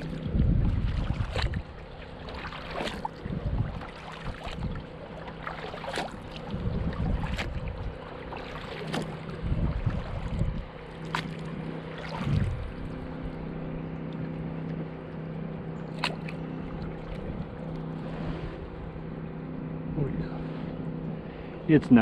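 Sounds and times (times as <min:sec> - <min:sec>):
kayak paddle dipping in water: 0:00.0 - 0:19.0
steady low hum: 0:00.0 - 0:22.0
water splashing and dripping: 0:00.6 - 0:10.4, 0:15.9 - 0:17.3.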